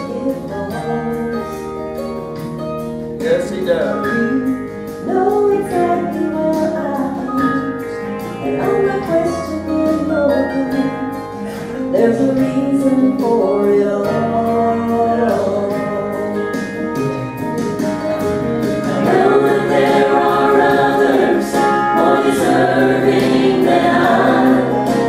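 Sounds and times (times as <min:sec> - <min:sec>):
guitar accompaniment: 0:00.0 - 0:25.0
two voices singing gospel: 0:18.9 - 0:25.0.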